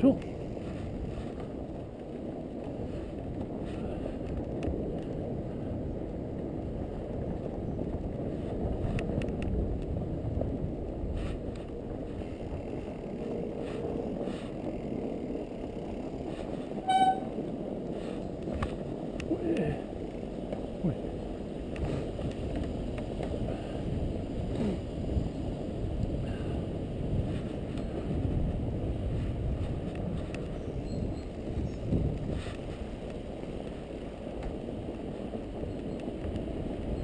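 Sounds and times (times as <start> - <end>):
bike tyres rumbling on snow: 0.0 - 37.0
short high-pitched toot: 16.8 - 17.4.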